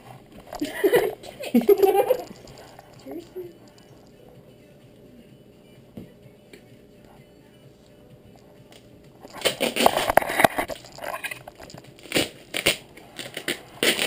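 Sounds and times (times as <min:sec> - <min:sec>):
duct tape ripping: 0:08.7 - 0:14.0.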